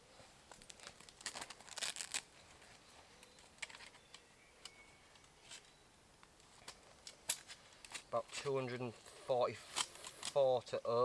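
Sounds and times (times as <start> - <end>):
camping gear rustling: 0.0 - 10.7
small clicks of gear: 3.2 - 5.7, 9.7 - 10.4.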